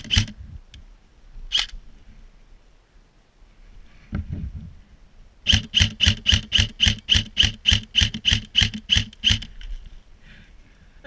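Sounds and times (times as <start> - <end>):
airsoft rifle shots: 0.0 - 0.4, 5.4 - 9.5.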